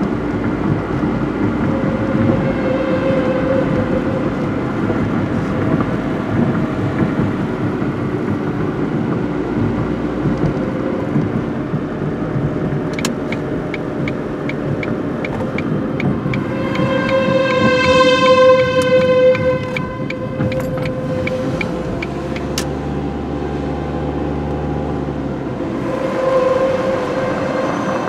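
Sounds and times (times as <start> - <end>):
faint warning siren: 0.0 - 7.2, 14.0 - 23.6, 25.5 - 28.0
turn signal ticking: 0.0 - 23.3
car tyre and engine noise: 0.0 - 28.0.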